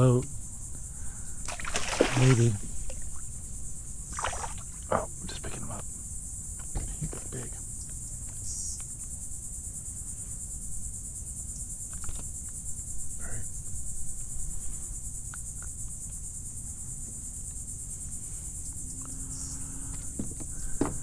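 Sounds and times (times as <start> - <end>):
high-pitched insect chorus: 0.0 - 21.0
faint knocks and rustles: 6.6 - 8.4, 19.9 - 21.0.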